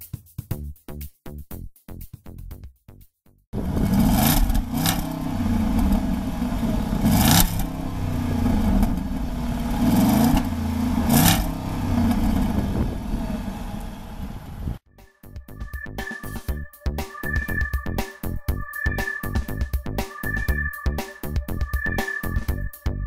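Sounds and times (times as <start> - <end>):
car exhaust revving: 3.6 - 14.8.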